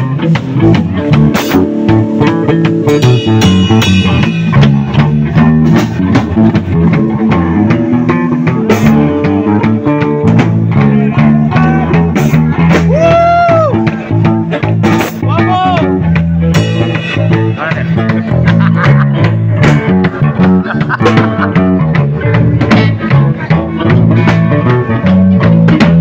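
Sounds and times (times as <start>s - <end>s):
held bending guitar lead note: 0.0s - 26.0s
rock band playing: 0.0s - 26.0s.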